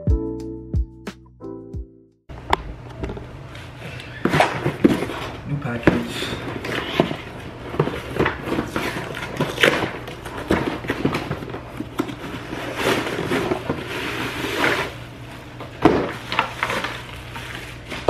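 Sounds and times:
plastic wrapping rustling: 3.4 - 18.0
cardboard flaps tearing and scraping: 4.2 - 15.0, 15.8 - 18.0
packing tape ripping: 6.3 - 15.0.

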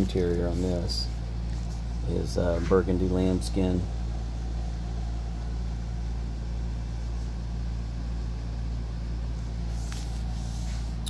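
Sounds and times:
machine humming: 0.0 - 11.0.

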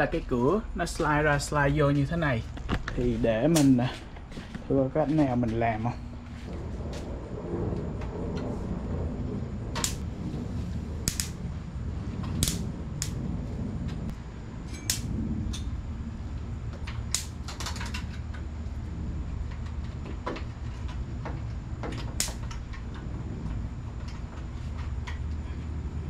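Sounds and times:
low hum: 0.0 - 26.0
insects snapping clicks: 9.8 - 10.0, 11.0 - 11.4, 12.4 - 13.2, 16.9 - 18.1, 22.2 - 22.8.

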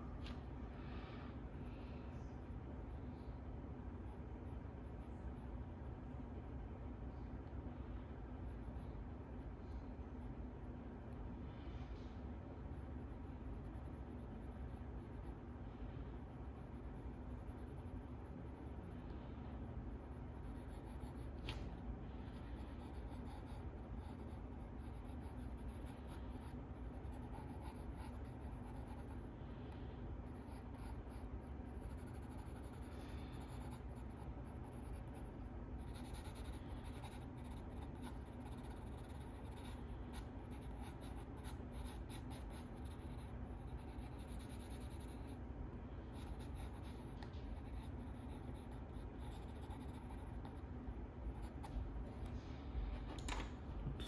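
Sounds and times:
pencil scratching on paper: 12.6 - 29.3, 30.2 - 45.4, 46.1 - 50.7.

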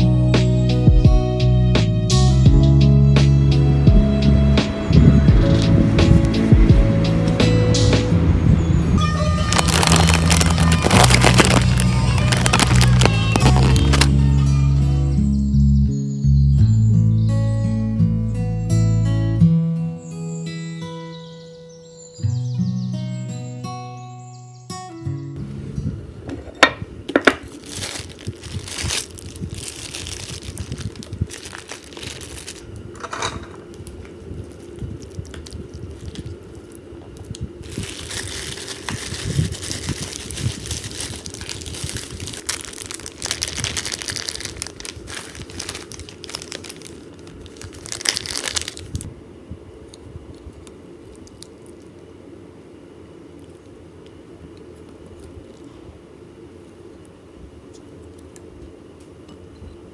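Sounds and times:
plastic bag crinkling: 9.3 - 14.1, 27.2 - 49.1, 49.9 - 52.1.

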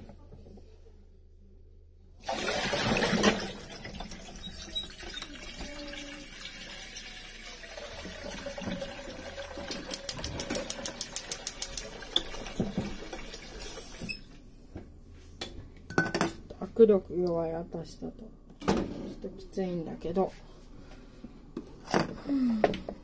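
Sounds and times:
tap water running into sink: 2.3 - 14.1.

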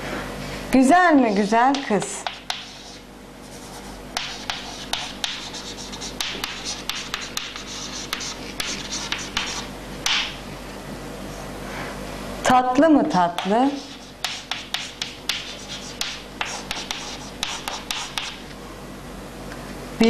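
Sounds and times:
chalk scratching on a chalkboard: 1.1 - 10.3, 13.4 - 18.4.

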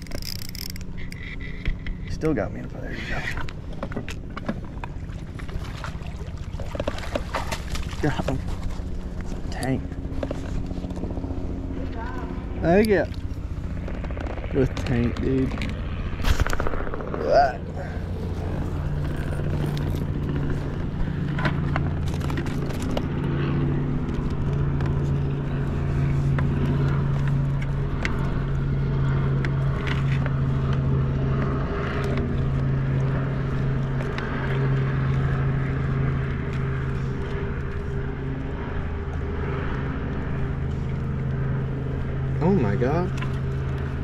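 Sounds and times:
low motor drone: 0.0 - 44.0.

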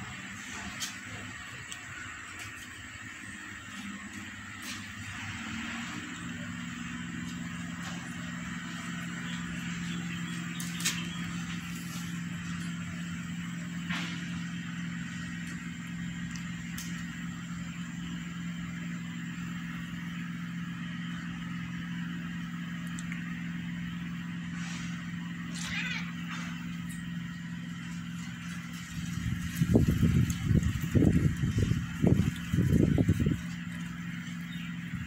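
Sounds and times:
low mechanical hum: 0.0 - 35.0.

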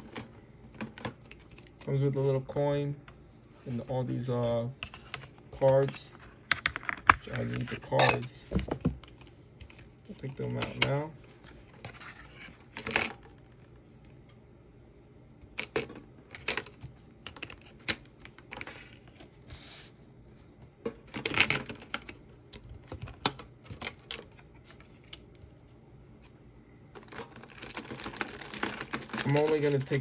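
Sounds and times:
packaging rustling: 26.9 - 30.0.

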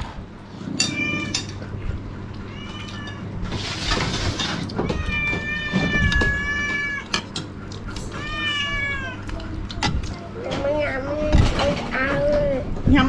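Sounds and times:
cat meowing: 2.5 - 3.3, 4.8 - 7.2, 8.0 - 9.4.

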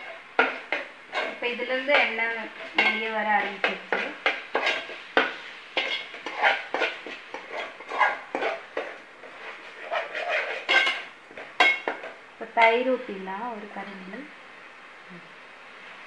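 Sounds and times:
metal spoon scraping metal pot: 5.8 - 11.9.

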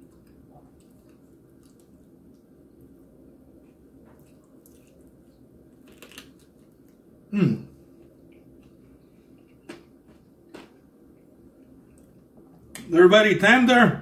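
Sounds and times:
person chewing: 0.0 - 7.1, 7.7 - 12.5.

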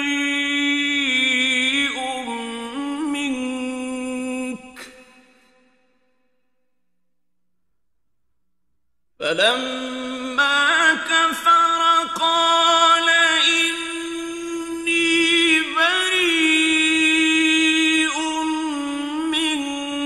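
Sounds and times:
man chanting recitation: 0.0 - 5.0, 9.2 - 20.0.

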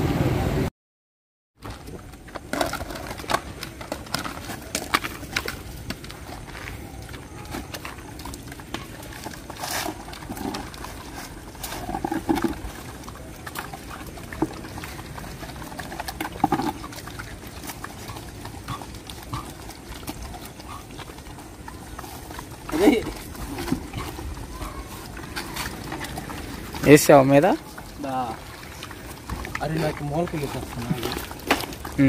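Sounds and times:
dogs eating: 1.6 - 32.0
dogs calling: 6.7 - 32.0.

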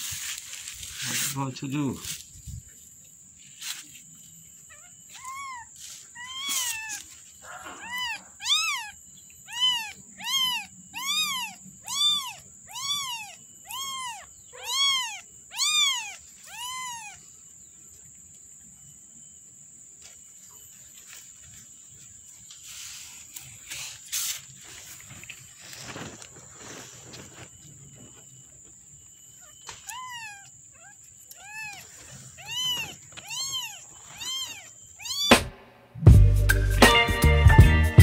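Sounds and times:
kitten mewing: 5.2 - 17.2, 29.9 - 35.5.

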